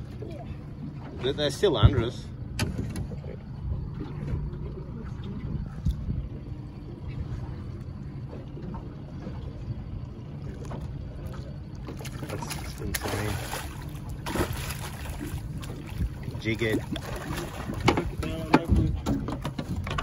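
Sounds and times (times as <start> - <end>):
boat low rumble: 0.0 - 20.0
wind on microphone: 5.1 - 7.5
fish thrashing and splashing: 10.6 - 20.0.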